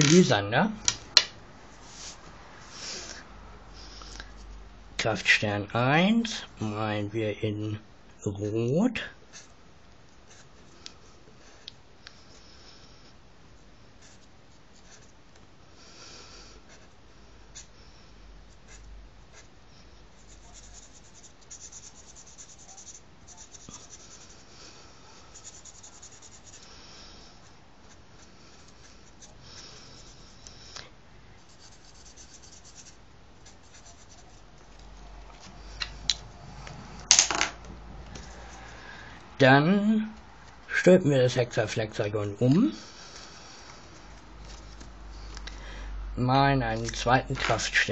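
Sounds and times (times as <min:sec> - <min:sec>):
marker scratching on paper: 0:10.2 - 0:10.7, 0:14.0 - 0:15.1, 0:16.7 - 0:17.7, 0:18.5 - 0:19.5, 0:20.1 - 0:24.4, 0:25.3 - 0:26.7, 0:27.9 - 0:30.6, 0:31.4 - 0:34.5.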